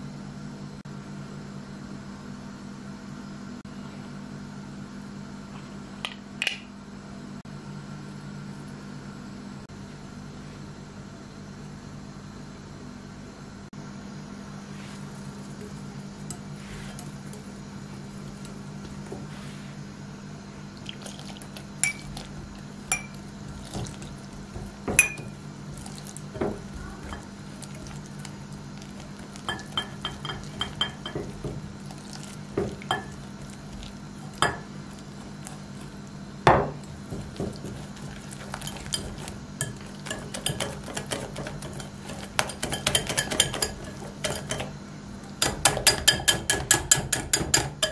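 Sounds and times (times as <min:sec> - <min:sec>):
steady low hum: 0:00.0 - 0:47.9
whisk clinking against glass bowl: 0:21.8 - 0:25.4, 0:28.9 - 0:31.7, 0:32.5 - 0:33.3, 0:34.3 - 0:34.7, 0:37.0 - 0:44.7, 0:45.4 - 0:47.9.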